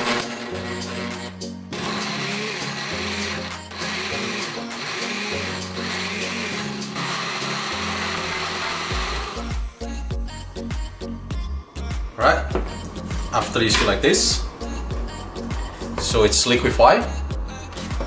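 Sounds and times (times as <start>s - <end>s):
blender churning: 0.0s - 9.6s.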